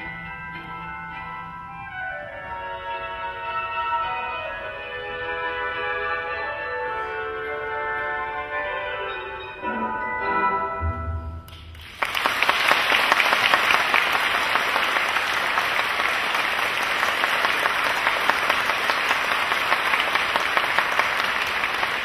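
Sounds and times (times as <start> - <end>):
audience applauding: 11.8 - 22.0.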